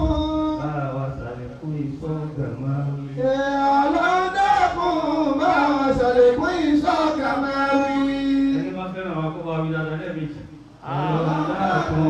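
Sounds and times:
man chanting a prayer: 0.0s - 12.0s.

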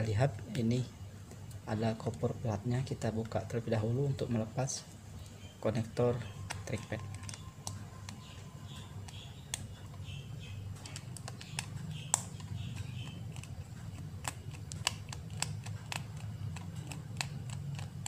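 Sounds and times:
steady low hum: 0.0s - 18.0s
screwdriver clicking on tiny screws: 10.8s - 18.0s.

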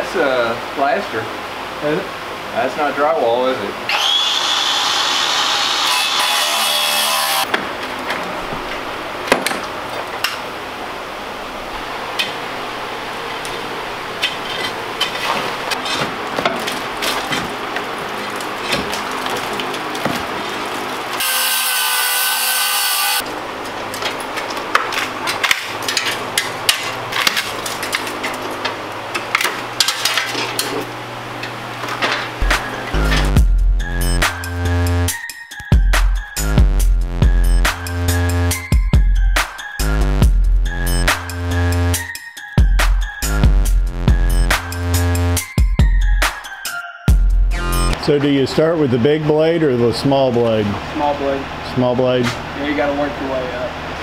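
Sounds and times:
power saw cutting: 3.9s - 7.5s, 21.1s - 23.2s.

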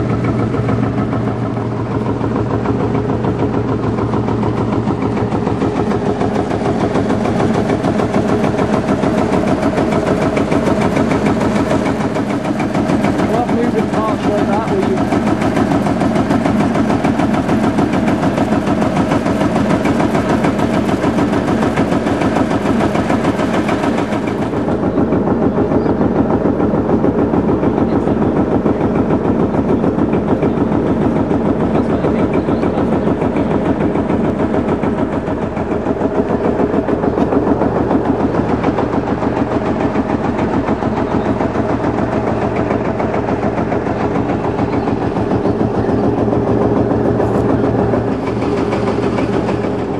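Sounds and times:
tractor diesel engine chugging: 0.0s - 49.9s.

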